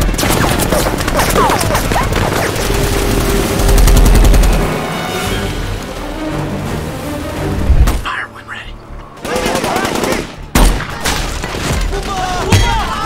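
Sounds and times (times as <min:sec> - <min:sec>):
rapid automatic gunfire: 0:00.0 - 0:04.8, 0:09.2 - 0:10.5
loud deep rumble: 0:02.5 - 0:06.1.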